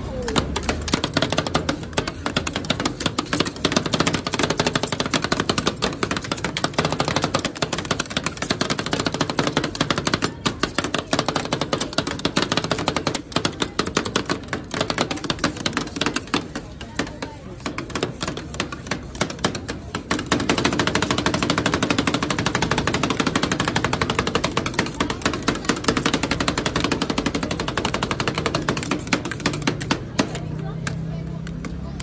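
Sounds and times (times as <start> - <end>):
metal spatulas chopping on steel: 0.1 - 31.0.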